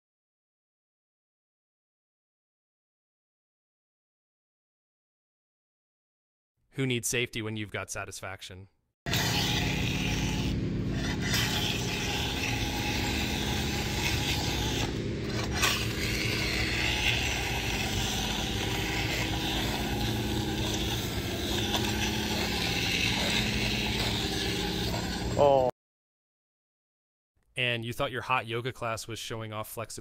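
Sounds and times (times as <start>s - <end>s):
floor scraper rasping on concrete: 9.1s - 25.7s.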